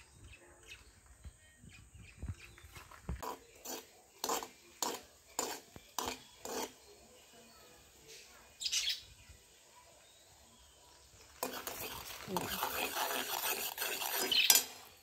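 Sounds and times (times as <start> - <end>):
metal ladle scraping a pan: 3.2 - 6.9, 11.4 - 15.0.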